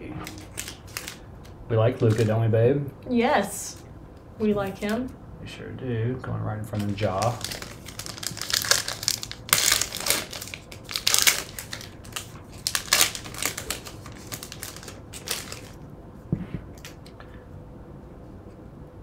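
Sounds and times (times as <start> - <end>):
foil wrapper crinkling and tearing: 0.2 - 1.2, 1.9 - 2.4, 6.7 - 15.8.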